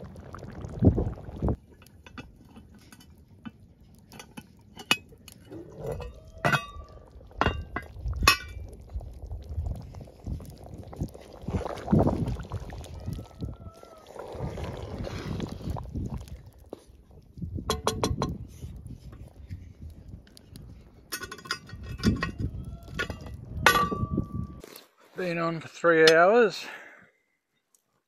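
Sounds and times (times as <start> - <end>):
wind rumble on microphone: 0.0 - 1.6, 5.8 - 24.6.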